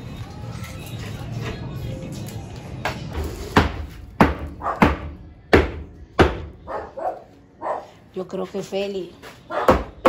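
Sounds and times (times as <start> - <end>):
sharp knocks and bangs: 3.2 - 6.6.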